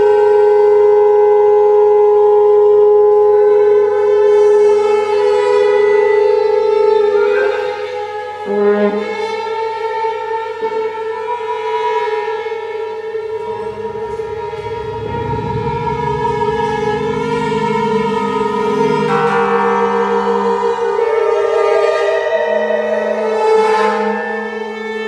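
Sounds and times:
chamber orchestra holding long notes: 0:12.7 - 0:24.8.

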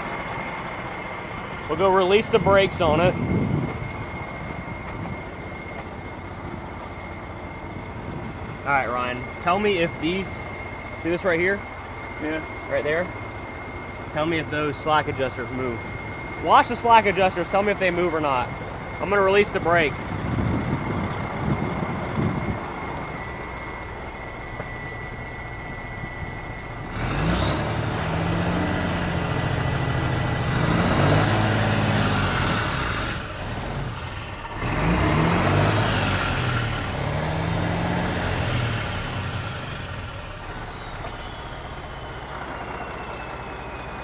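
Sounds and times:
diesel truck engine revving: 0:00.0 - 0:44.0
high whine: 0:00.0 - 0:44.0
steady high tone: 0:00.0 - 0:44.0.

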